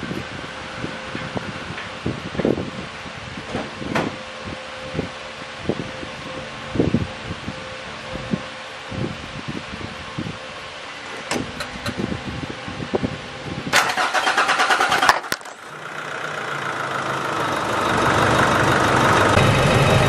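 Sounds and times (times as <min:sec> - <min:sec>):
diesel engine idling: 0:00.0 - 0:20.0
starter motor cranking: 0:13.8 - 0:15.6.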